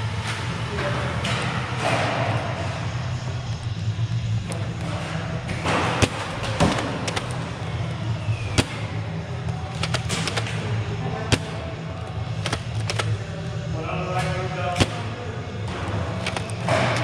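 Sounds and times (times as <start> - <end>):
steady low hum: 0.0 - 17.0
foam dart blasters firing: 5.5 - 7.6, 8.4 - 9.1, 9.8 - 11.8
darts smacking into cover: 8.5 - 9.0.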